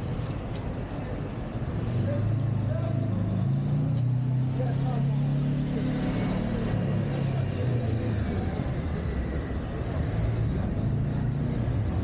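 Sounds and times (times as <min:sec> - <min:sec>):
vehicle engines humming: 0:00.0 - 0:12.0.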